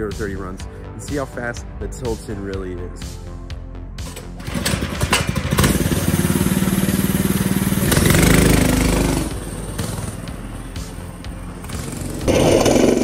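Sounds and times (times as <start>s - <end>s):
engine pull-start: 4.0s - 10.2s, 11.6s - 13.0s
minibike engine running and revving: 4.4s - 13.0s.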